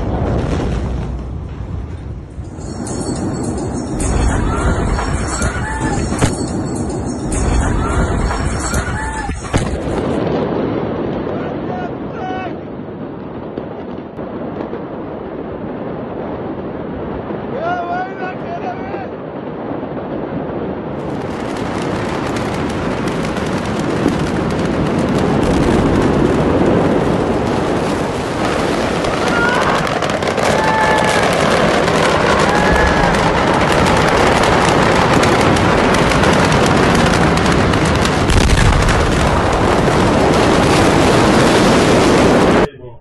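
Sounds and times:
faint shouts: 11.4 - 12.6, 17.5 - 19.2, 29.2 - 31.4, 32.3 - 33.6
loud crackling roar: 24.6 - 42.7.

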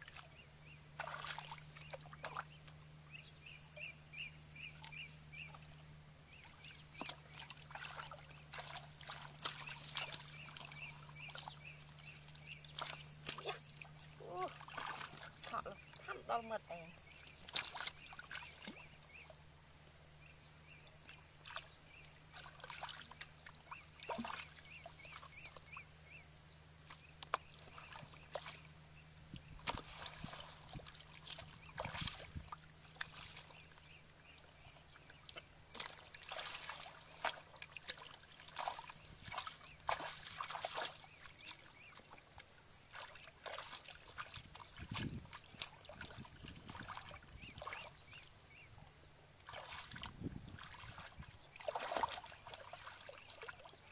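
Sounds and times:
hands splashing in muddy water: 1.0 - 2.5, 6.9 - 16.1, 17.2 - 18.9, 24.0 - 25.6, 29.5 - 33.7, 35.3 - 48.2, 49.4 - 53.9.

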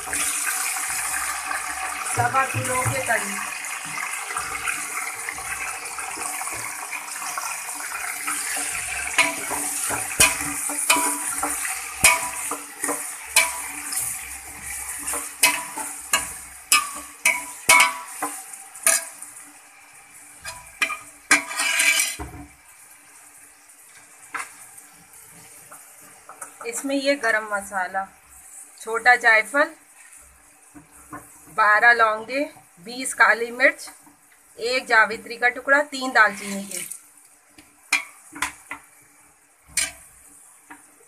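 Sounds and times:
chicken sizzling in hot oil: 0.0 - 41.0
metal ladle scraping pot: 3.9 - 19.2, 20.4 - 22.3.

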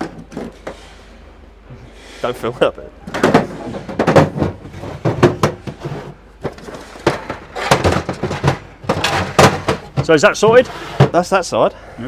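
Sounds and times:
plastic cases clunking and clicking: 0.0 - 0.8, 3.0 - 11.3.

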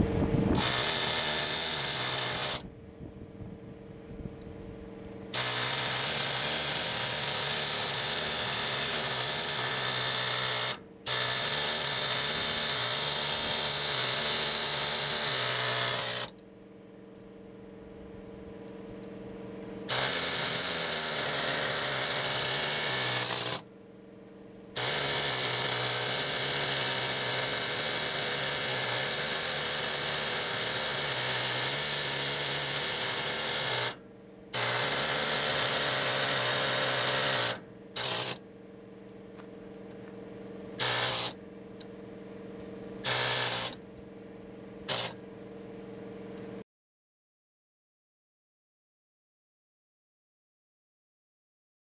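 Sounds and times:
pneumatic air hammer on steel: 0.6 - 2.7, 5.3 - 16.4, 19.9 - 23.6, 24.8 - 34.0, 34.6 - 38.4, 40.8 - 41.4, 43.0 - 43.8, 44.8 - 45.2.

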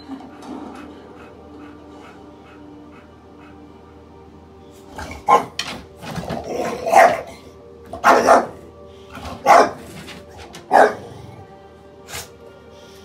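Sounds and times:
bulldog barking: 5.0 - 5.6, 6.4 - 8.6, 9.2 - 9.9, 10.7 - 11.2.

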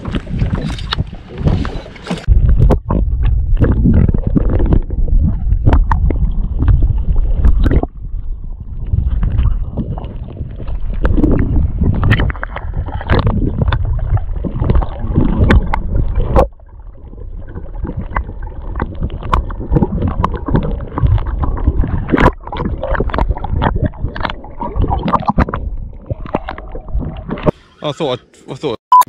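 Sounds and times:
water splashing and sloshing: 0.0 - 28.5.

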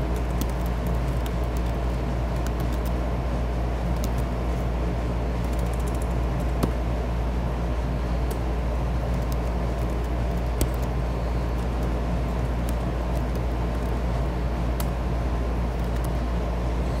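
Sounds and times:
low background rumble: 0.0 - 17.0
keyboard keys clicking: 0.1 - 3.0, 5.4 - 6.7, 11.6 - 14.0, 15.7 - 16.2.

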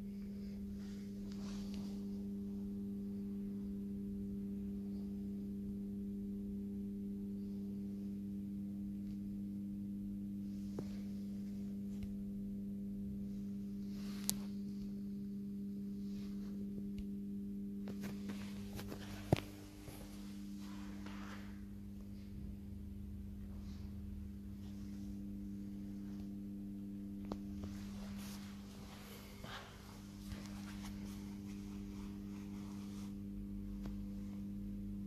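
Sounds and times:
low electrical hum: 0.0 - 35.0.

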